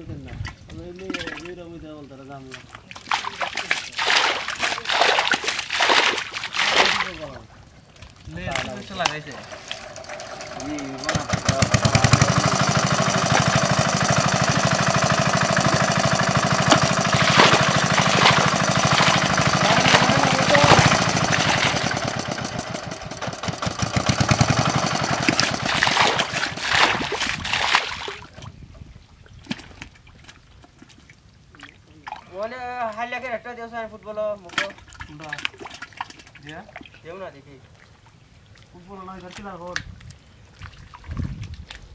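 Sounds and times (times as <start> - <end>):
small engine running: 9.0 - 27.5.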